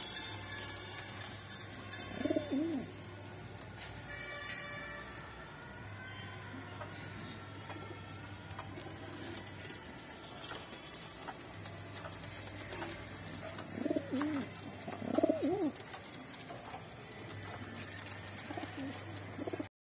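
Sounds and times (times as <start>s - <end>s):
pigeons cooing: 2.0s - 2.9s, 12.3s - 16.7s, 17.3s - 19.7s.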